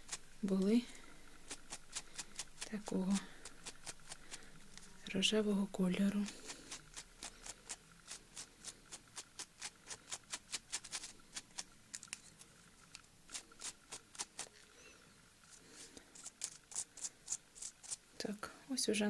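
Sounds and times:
faint clicks and scratches of fingernails: 0:06.0 - 0:14.7, 0:15.5 - 0:18.0.

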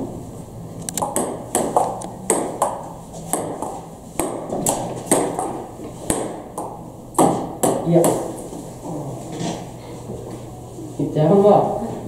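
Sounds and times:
ping pong ball clicking off paddles: 0:00.9 - 0:08.3
ball bouncing on table: 0:01.0 - 0:08.3.

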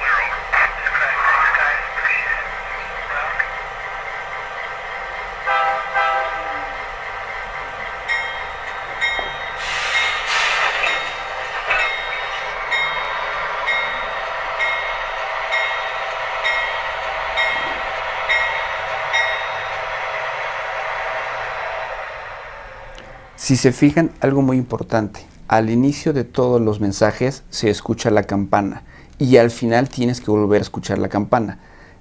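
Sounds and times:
locomotive bell ringing: 0:00.5 - 0:23.3
locomotive horn toots: 0:05.4 - 0:06.8
burst of hiss: 0:09.5 - 0:11.6.

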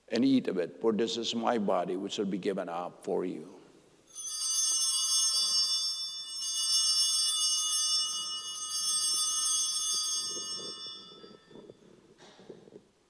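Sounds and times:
altar bells ringing: 0:04.1 - 0:12.0.

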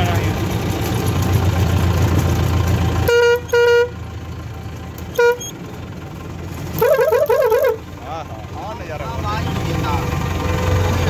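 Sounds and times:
tractor engine rumbling: 0:00.0 - 0:11.0
short horn honks: 0:03.1 - 0:04.0, 0:05.1 - 0:05.6, 0:06.8 - 0:07.8.

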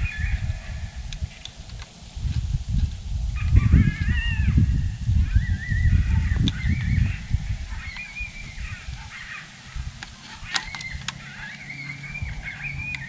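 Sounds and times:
wind rumble on microphone: 0:00.0 - 0:13.0
high-pitched wavering animal cries: 0:03.4 - 0:13.0
sharp clicks: 0:10.0 - 0:11.9.

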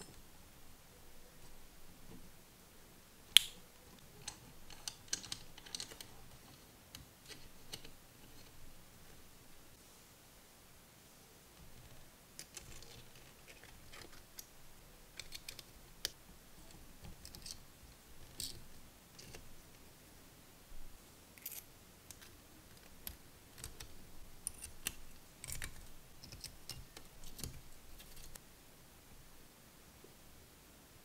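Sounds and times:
small metal parts clicking: 0:04.2 - 0:08.5, 0:15.2 - 0:16.2, 0:17.1 - 0:17.6, 0:18.2 - 0:19.4, 0:21.4 - 0:28.4.

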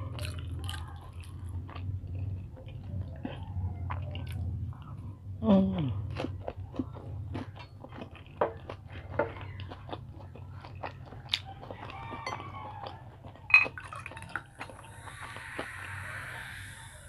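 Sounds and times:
chewing with wet clicks: 0:00.0 - 0:16.8
glass bottle clinking on glass: 0:13.5 - 0:14.1
cola pouring and fizzing: 0:13.5 - 0:14.6.

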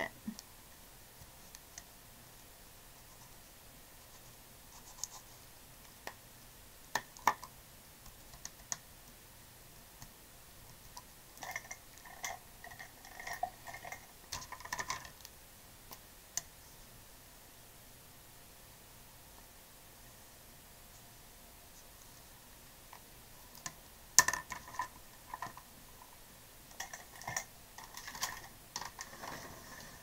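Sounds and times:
plastic pens clattering: 0:11.4 - 0:15.2, 0:26.7 - 0:30.0.

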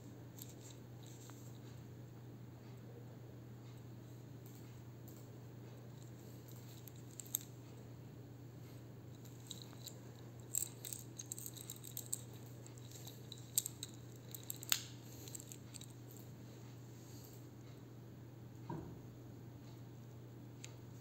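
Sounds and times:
steady low hum: 0:00.0 - 0:21.0
metal watch bracelet jingling: 0:06.0 - 0:07.5, 0:09.2 - 0:16.3.

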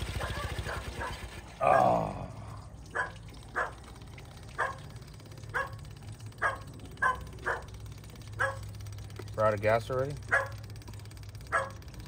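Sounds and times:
dog barking: 0:00.1 - 0:01.9, 0:02.9 - 0:03.8, 0:04.6 - 0:04.9, 0:05.5 - 0:05.8, 0:06.4 - 0:08.7, 0:10.2 - 0:10.6, 0:11.5 - 0:11.8
dog yelping: 0:00.1 - 0:01.9, 0:02.9 - 0:03.8, 0:04.6 - 0:04.8, 0:05.5 - 0:05.8, 0:06.4 - 0:07.7, 0:08.4 - 0:08.7, 0:10.2 - 0:10.6, 0:11.5 - 0:11.8.

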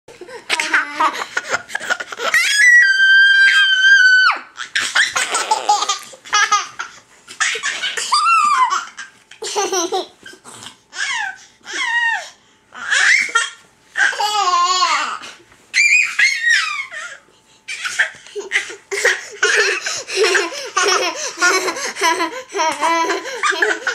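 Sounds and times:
children laughing and squealing: 0:00.5 - 0:06.1, 0:07.4 - 0:09.5, 0:15.8 - 0:23.9.

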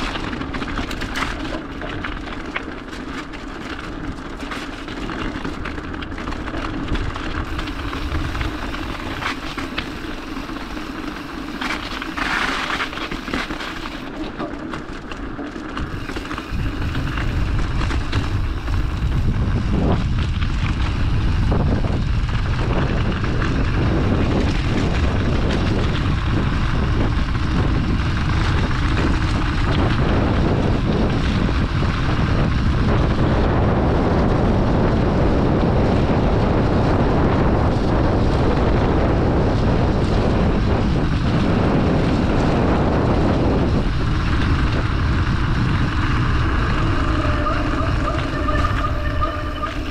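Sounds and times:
wind rush on microphone: 0:00.0 - 0:15.0, 0:15.6 - 0:49.9
bike tyres rolling on wet road: 0:00.0 - 0:49.9.

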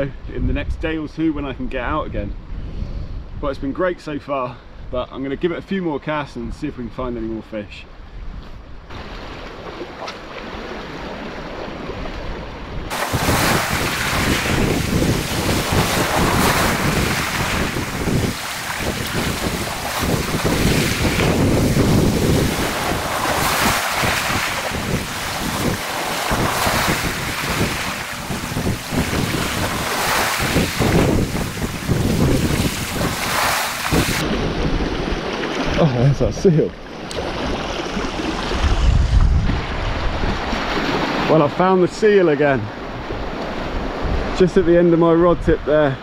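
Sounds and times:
wind buffeting microphone: 0:08.1 - 0:36.4, 0:37.0 - 0:41.2, 0:42.7 - 0:45.8
waves breaking on rocks: 0:08.9 - 0:36.1.

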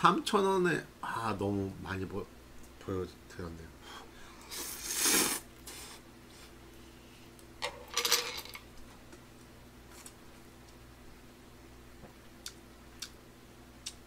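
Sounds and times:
steady low hum: 0:00.0 - 0:14.0
person slurping noodles: 0:04.5 - 0:05.9.

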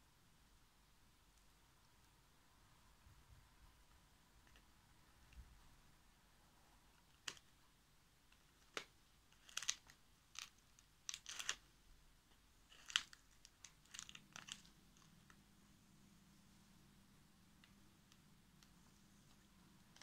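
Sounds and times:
dry husks crackling: 0:12.3 - 0:15.4.

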